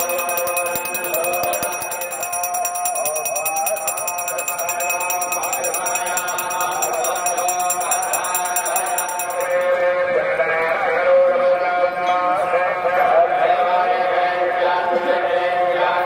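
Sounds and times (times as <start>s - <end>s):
bell rung rapidly: 0.0s - 9.9s.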